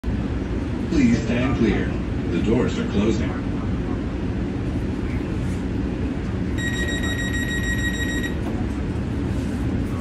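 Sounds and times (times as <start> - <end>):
train car low hum: 0.0 - 10.0
high door warning beep: 6.6 - 8.4.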